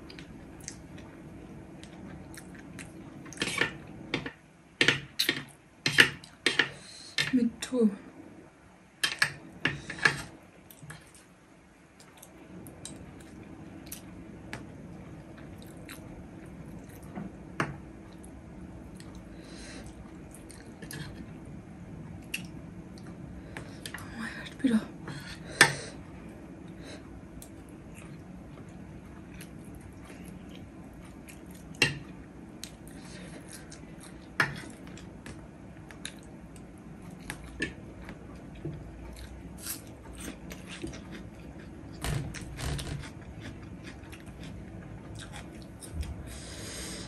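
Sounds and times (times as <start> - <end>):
chewing: 42.6 - 46.2.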